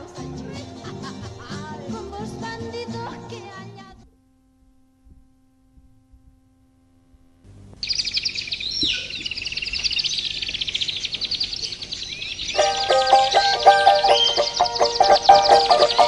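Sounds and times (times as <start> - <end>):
faint steady hum: 0.0 - 16.0
soft hiss: 1.7 - 12.1
birdsong chirping trills: 7.8 - 16.0.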